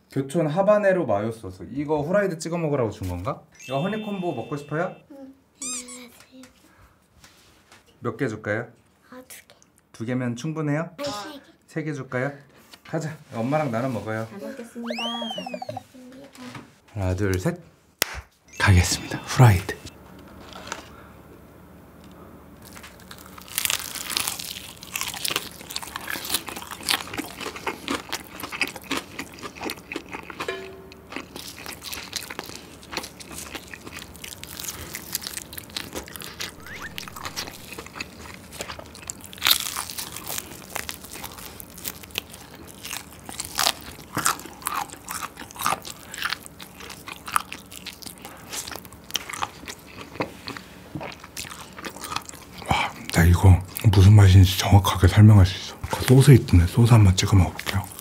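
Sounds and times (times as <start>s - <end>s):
fried chicken crunching: 22.6s - 53.9s.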